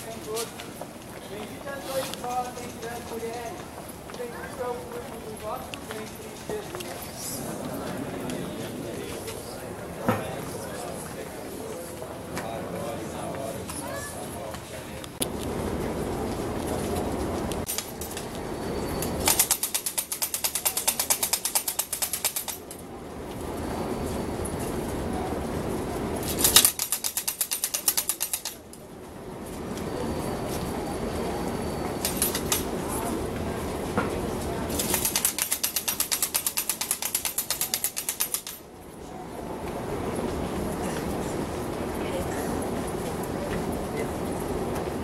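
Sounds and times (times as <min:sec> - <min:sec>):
wooden ratchet rattle clacking: 0:19.0 - 0:22.7, 0:26.3 - 0:28.6, 0:32.0 - 0:32.7, 0:34.7 - 0:38.6.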